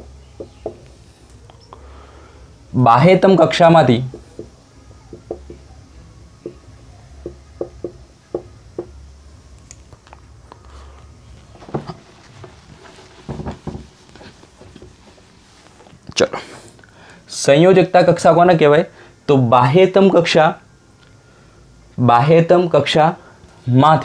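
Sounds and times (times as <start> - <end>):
marker tapping and scratching on whiteboard: 0.4 - 0.9, 4.0 - 5.7, 7.2 - 9.0.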